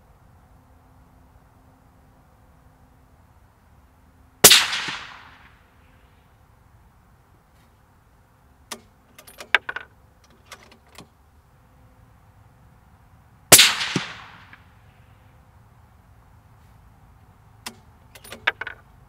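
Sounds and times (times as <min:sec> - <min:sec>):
suppressed rifle shot: 0:04.4 - 0:05.5, 0:13.5 - 0:14.6
rifle bolt metallic clicks: 0:08.7 - 0:11.1, 0:17.6 - 0:18.8.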